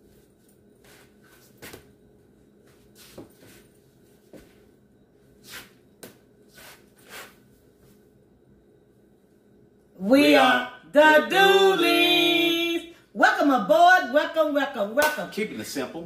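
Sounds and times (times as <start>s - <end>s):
dancing footsteps and clothing swishes: 0.0s - 2.0s, 2.6s - 4.7s, 5.4s - 8.0s
room hum: 0.0s - 16.0s.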